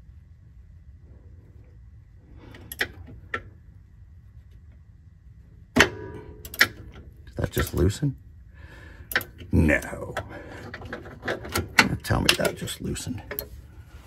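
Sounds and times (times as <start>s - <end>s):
wrench clicks: 9.1s - 9.9s.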